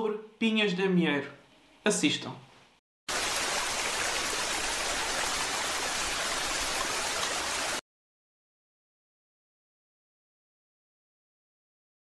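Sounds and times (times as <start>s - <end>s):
rushing water hiss: 3.1s - 7.8s.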